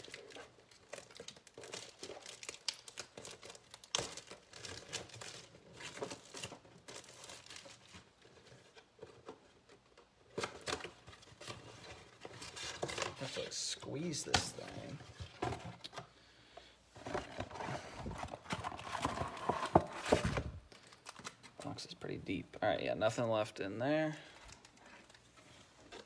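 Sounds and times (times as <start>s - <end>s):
packaging crinkling and tearing: 0.0s - 8.8s, 17.0s - 22.0s.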